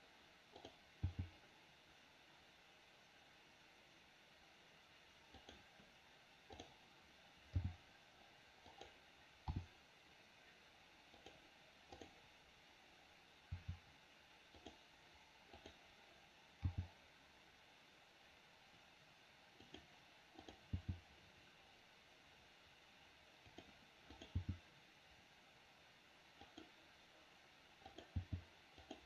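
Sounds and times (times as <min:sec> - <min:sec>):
mouse and keyboard clicking: 0:00.6 - 0:01.3, 0:05.3 - 0:05.7, 0:06.5 - 0:06.8, 0:08.7 - 0:09.7, 0:11.2 - 0:12.2, 0:14.5 - 0:14.8, 0:15.5 - 0:15.8, 0:19.6 - 0:21.0, 0:23.5 - 0:24.6, 0:26.4 - 0:26.7, 0:27.8 - 0:29.0.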